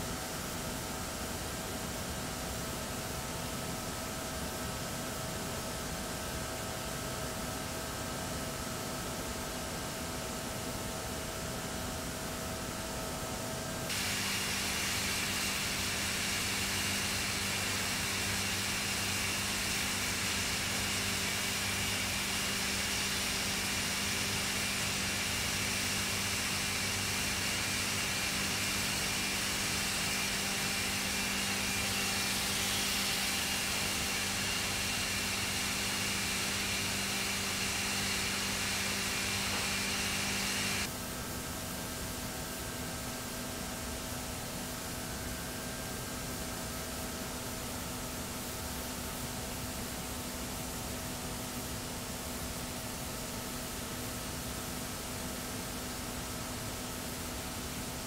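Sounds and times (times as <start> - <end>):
steam hissing: 13.9 - 40.9.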